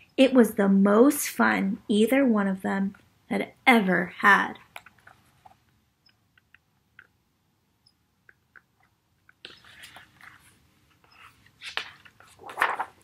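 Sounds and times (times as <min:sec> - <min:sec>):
book pages rustling: 0:09.3 - 0:13.0.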